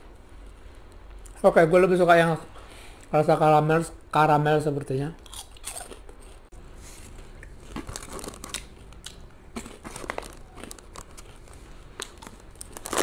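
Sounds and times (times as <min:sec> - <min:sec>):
popcorn crackles: 0:07.4 - 0:13.0
paper bag crinkling: 0:07.6 - 0:08.7, 0:09.8 - 0:13.0.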